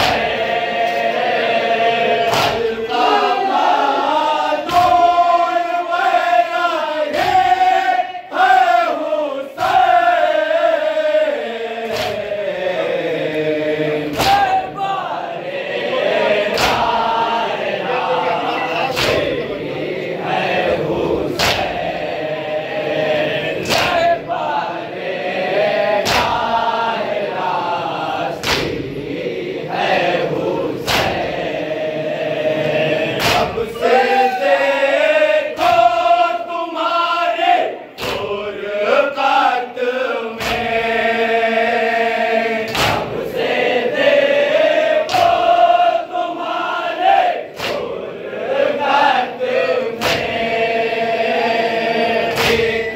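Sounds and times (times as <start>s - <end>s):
chest-beating slaps: 0.0s - 1.2s, 2.2s - 2.9s, 4.6s - 5.3s, 7.1s - 7.7s, 9.6s - 10.0s, 11.8s - 12.4s, 13.3s - 14.7s, 16.4s - 17.2s, 18.8s - 19.7s, 21.3s - 21.9s, 23.6s - 24.2s, 26.0s - 26.6s, 28.3s - 29.0s, 30.7s - 31.4s, 33.1s - 33.9s, 35.5s - 36.0s, 37.9s - 38.4s, 40.4s - 40.8s, 42.6s - 43.2s, 45.0s - 45.6s, 47.5s - 48.0s, 49.9s - 50.4s, 52.2s - 52.9s
men chanting in unison: 0.0s - 52.9s.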